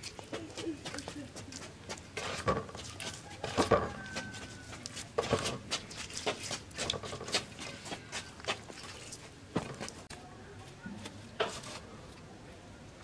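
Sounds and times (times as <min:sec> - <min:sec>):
hands squelching marinade into fish: 0:00.0 - 0:10.2.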